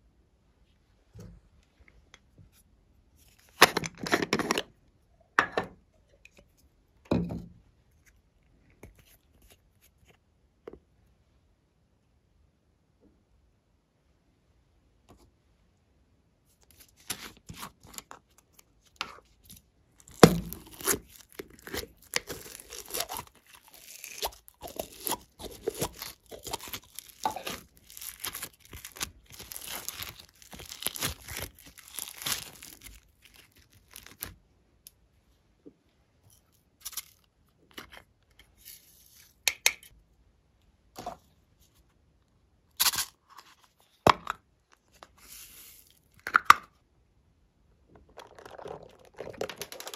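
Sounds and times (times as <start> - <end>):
slime crackling and popping: 20.0 - 34.3.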